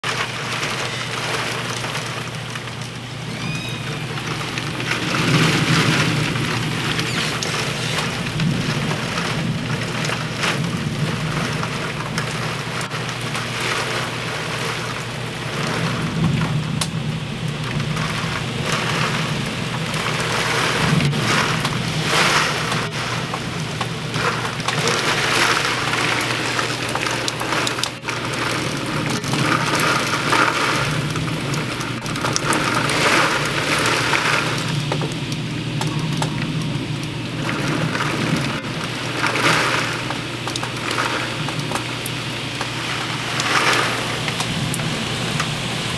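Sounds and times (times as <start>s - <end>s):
heavy rain in high winds: 0.0s - 45.9s.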